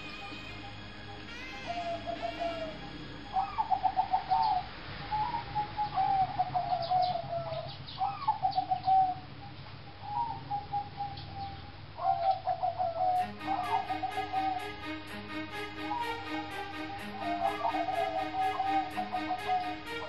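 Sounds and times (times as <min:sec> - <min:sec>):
doves cooing: 0:00.0 - 0:09.3
small birds chirping: 0:00.0 - 0:14.6.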